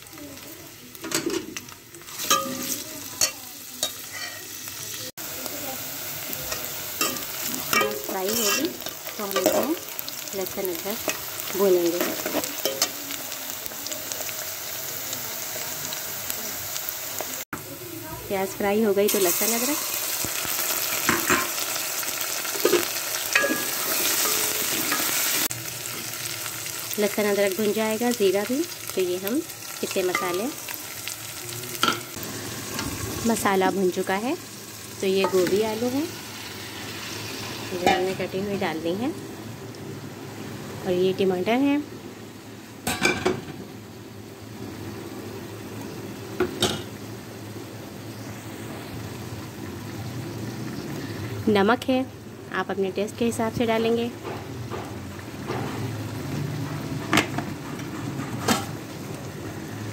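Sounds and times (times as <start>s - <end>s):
paste sizzling in hot oil: 0.0s - 42.9s
kitchenware clinking: 2.2s - 4.5s, 7.0s - 9.8s, 12.0s - 13.0s, 21.0s - 21.6s, 22.6s - 25.2s, 31.8s - 32.2s, 42.9s - 43.6s.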